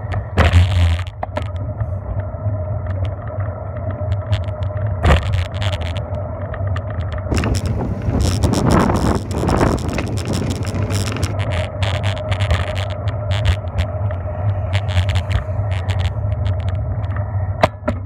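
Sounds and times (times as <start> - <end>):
bicycle rattling clicks: 3.8 - 17.2
wind buffeting microphone: 6.8 - 17.1
tyre rumble on pavement: 7.3 - 13.7.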